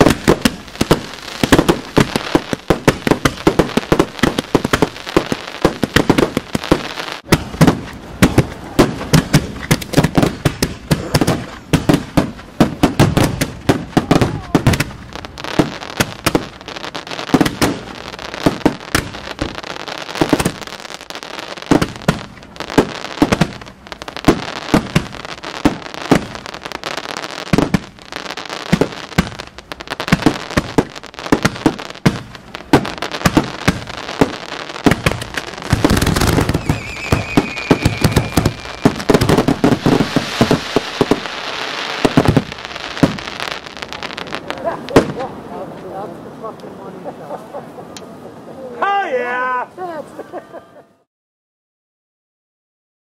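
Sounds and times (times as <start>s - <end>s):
deep fireworks booms: 0.0s - 45.6s
fireworks bangs: 0.0s - 47.0s
fireworks crackling: 0.0s - 50.2s.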